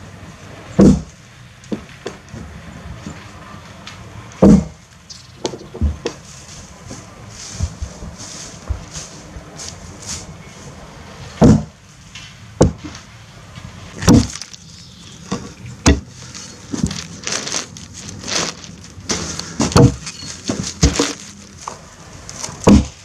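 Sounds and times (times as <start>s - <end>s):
axe chopping log: 0.8s - 1.1s, 4.4s - 4.8s, 11.4s - 11.8s, 12.6s - 12.9s, 14.0s - 14.4s, 15.3s - 16.1s, 19.1s - 21.2s, 22.6s - 23.0s.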